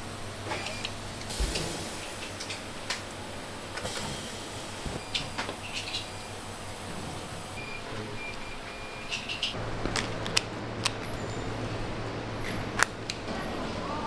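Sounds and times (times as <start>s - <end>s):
workshop hum: 0.0s - 14.0s
short electronic beeps: 7.6s - 9.3s.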